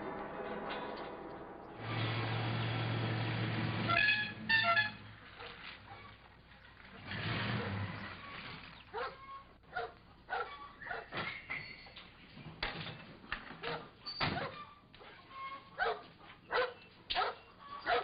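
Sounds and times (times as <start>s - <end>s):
dog barking: 8.9s - 11.2s, 15.8s - 18.0s.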